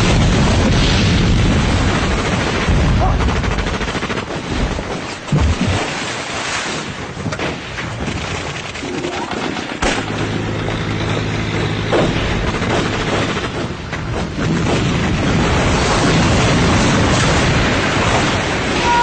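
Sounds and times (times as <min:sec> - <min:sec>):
rifle and machine-gun fire: 0:00.0 - 0:05.4, 0:08.8 - 0:18.7
steady low drone: 0:08.8 - 0:19.0.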